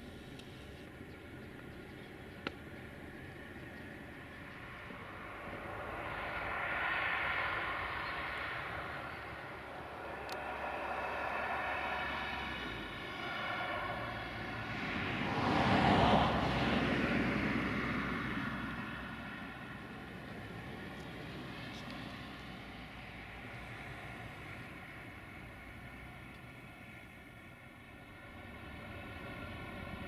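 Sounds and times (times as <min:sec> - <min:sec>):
distant engine droning: 0:00.0 - 0:30.0
something passing by: 0:04.6 - 0:24.3.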